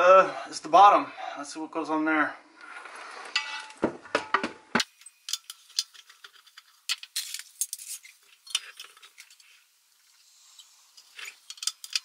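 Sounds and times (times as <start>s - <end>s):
light metallic clicks and clinks: 5.0s - 9.6s, 10.5s - 12.0s.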